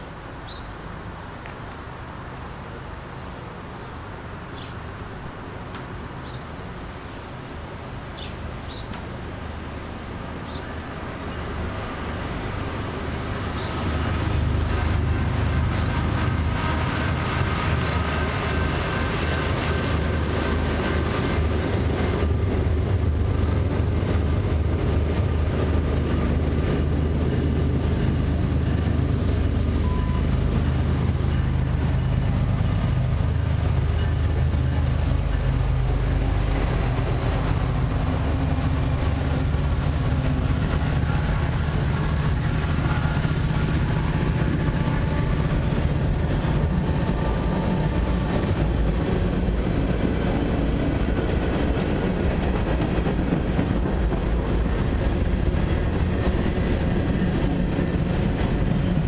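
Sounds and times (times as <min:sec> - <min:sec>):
diesel locomotives passing: 0:00.0 - 0:59.0.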